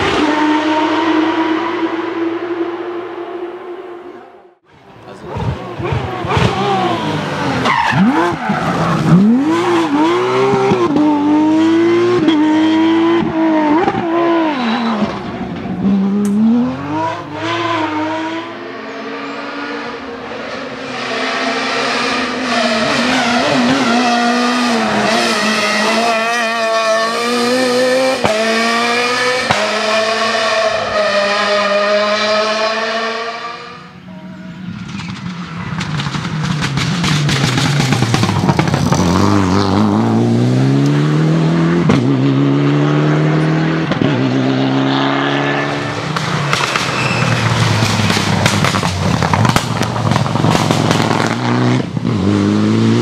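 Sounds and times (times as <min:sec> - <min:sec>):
rally car engines at full throttle: 0:00.0 - 0:53.0.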